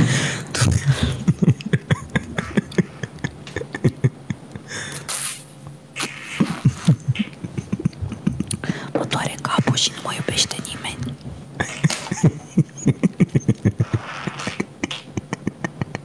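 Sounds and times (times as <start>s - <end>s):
beatboxing hiss: 0.0s - 16.0s
beatboxing mouth pops and clicks: 5.1s - 5.4s, 6.0s - 9.7s, 13.6s - 16.0s.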